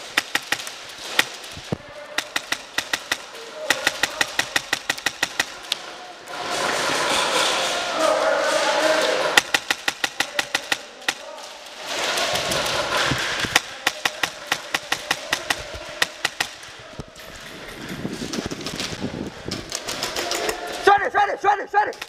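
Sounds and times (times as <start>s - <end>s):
airsoft gunfire cracks: 2.1s - 5.6s, 9.4s - 11.2s.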